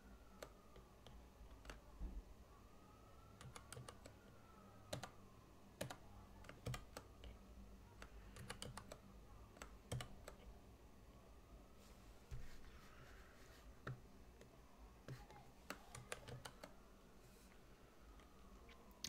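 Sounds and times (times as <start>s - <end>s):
computer keyboard keystrokes: 0.4s - 1.8s, 3.4s - 4.3s, 4.9s - 5.2s, 5.8s - 7.1s, 8.0s - 9.0s, 9.6s - 10.5s, 15.1s - 16.8s.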